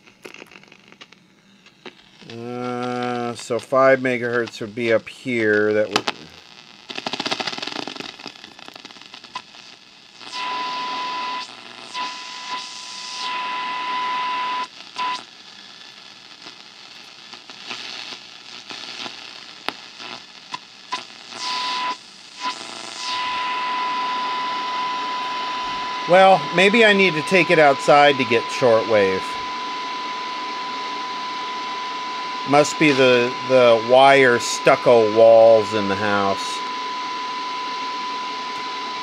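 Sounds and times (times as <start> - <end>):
radio static hiss: 0.0 - 39.0
high whistle tone: 23.2 - 39.0.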